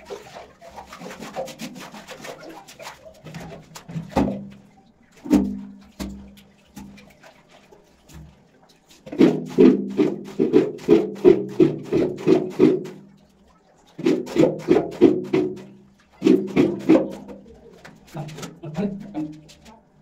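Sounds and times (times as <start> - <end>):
music with percussive beat: 14.3 - 17.2.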